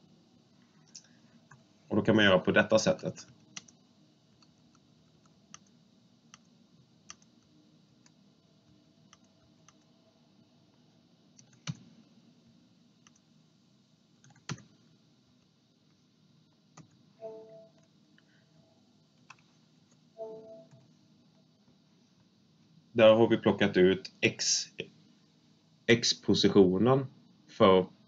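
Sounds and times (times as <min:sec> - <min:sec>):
faint room hiss: 0:00.0 - 0:28.0
computer mouse clicks: 0:03.2 - 0:03.8, 0:04.4 - 0:05.7, 0:06.3 - 0:06.5, 0:07.1 - 0:07.4, 0:09.1 - 0:09.9, 0:11.4 - 0:11.9, 0:13.0 - 0:13.2.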